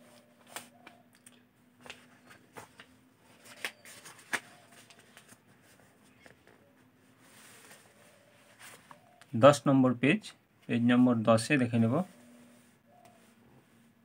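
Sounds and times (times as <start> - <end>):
paper pages turning: 1.8 - 6.5.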